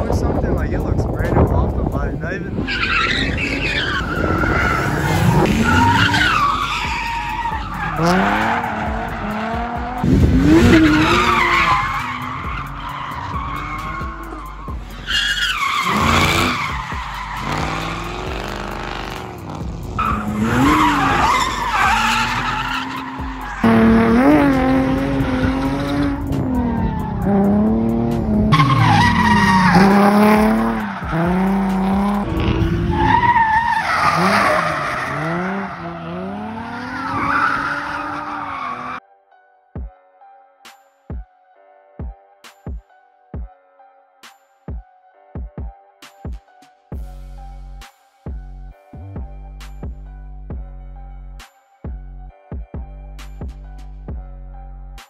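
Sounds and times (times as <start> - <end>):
car engines revving hard: 2.5 - 39.0
tyres screeching: 2.6 - 27.5, 28.5 - 39.0.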